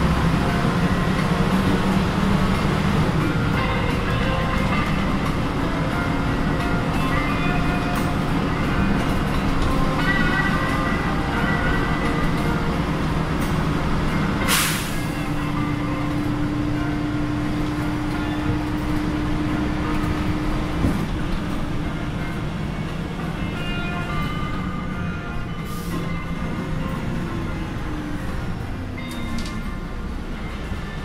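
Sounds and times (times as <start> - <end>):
bus engine and road rumble: 0.0 - 31.0
air brakes hissing: 14.4 - 15.2, 25.6 - 26.2
click: 29.1 - 29.6.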